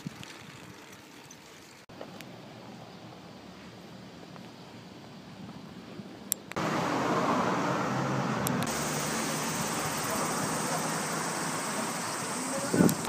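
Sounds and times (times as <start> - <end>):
city street traffic: 1.8 - 13.0
sharp clicks: 12.8 - 13.0.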